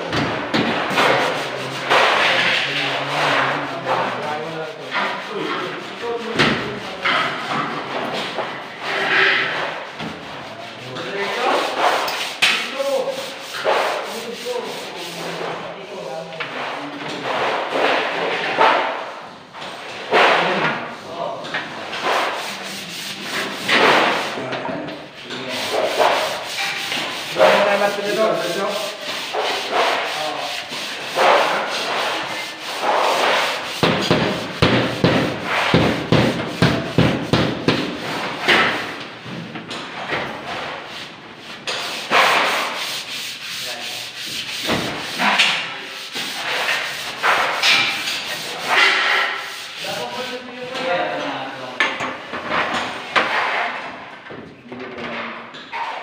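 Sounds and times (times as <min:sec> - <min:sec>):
rough rubbing against board: 0:00.7 - 0:15.7, 0:21.7 - 0:24.5, 0:25.2 - 0:39.2, 0:39.9 - 0:50.7, 0:52.6 - 0:53.9.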